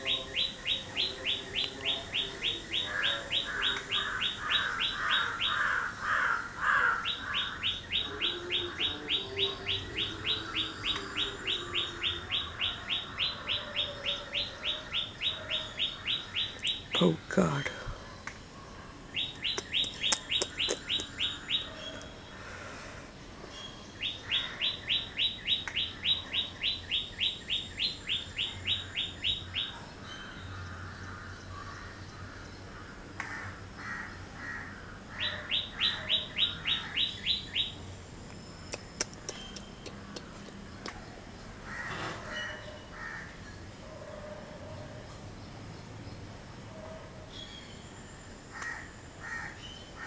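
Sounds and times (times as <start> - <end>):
bird singing falling notes: 7.0 - 13.4, 19.2 - 22.3
soft bird chirps: 7.1 - 22.5, 35.6 - 43.7.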